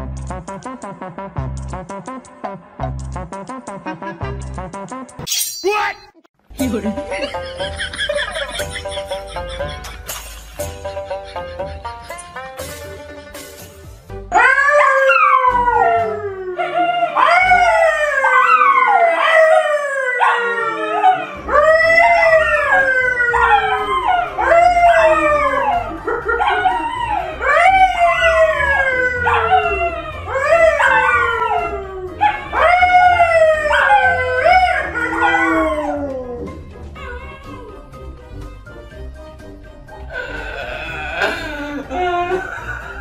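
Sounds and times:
dogs howling: 14.3s - 38.0s, 40.1s - 43.0s
man howling: 14.4s - 37.8s, 40.1s - 43.0s.

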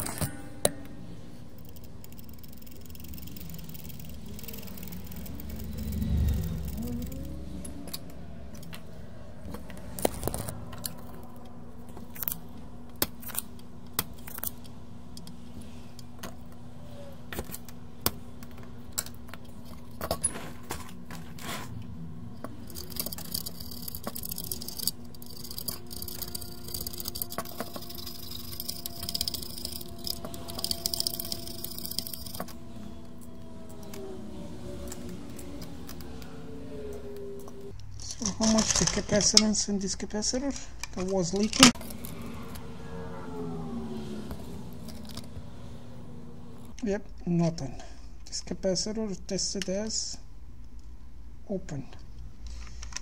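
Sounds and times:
steady low hum: 0.0s - 53.0s.

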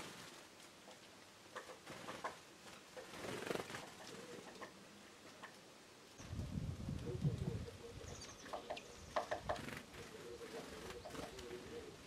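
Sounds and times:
birds chirping: 7.0s - 12.0s.

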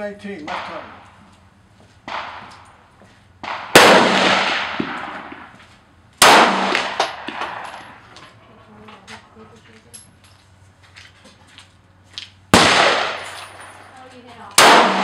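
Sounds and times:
pistol shots echoing: 0.4s - 1.2s, 2.0s - 2.8s, 3.4s - 5.5s, 6.2s - 8.0s, 12.5s - 13.9s, 14.5s - 15.0s.

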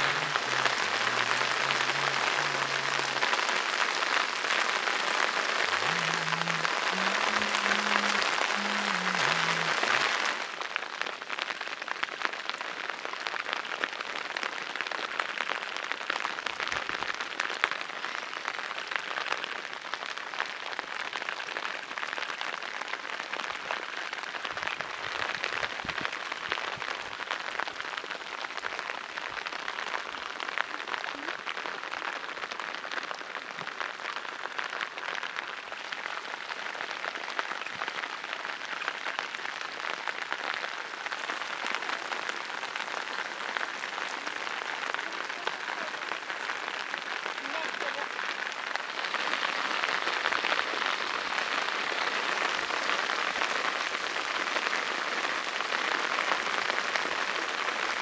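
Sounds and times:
rain falling on water: 0.0s - 58.0s.

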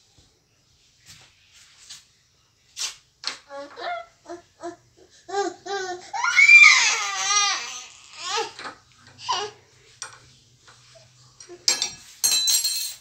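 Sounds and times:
toddler babbling: 3.5s - 8.6s, 9.2s - 9.6s
toddler shrieking: 5.9s - 8.6s.

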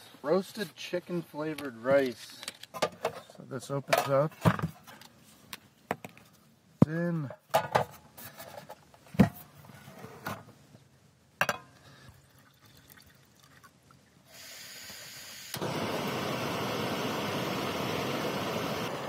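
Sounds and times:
gas hissing softly: 14.2s - 19.0s
gas burner roaring: 14.4s - 19.0s.

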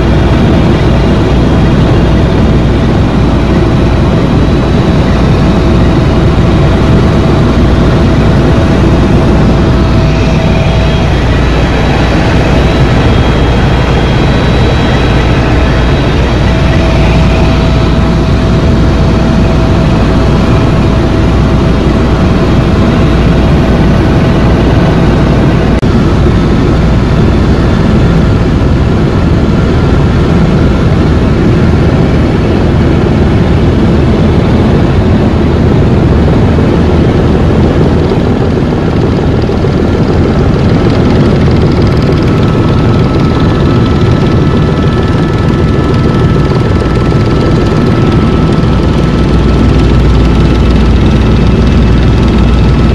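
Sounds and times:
helicopter engine and rotors: 0.0s - 52.9s
faint thin whine: 0.5s - 25.7s.

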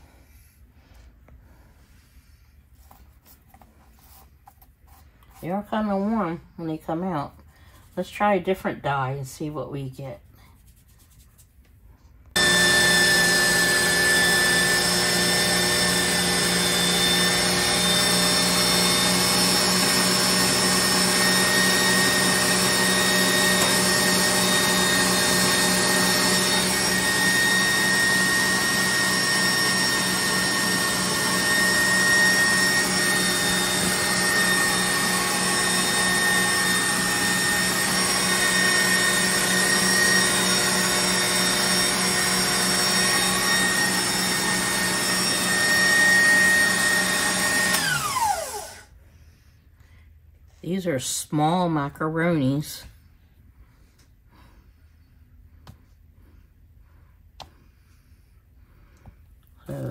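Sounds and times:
stand mixer motor whining: 12.4s - 48.9s.

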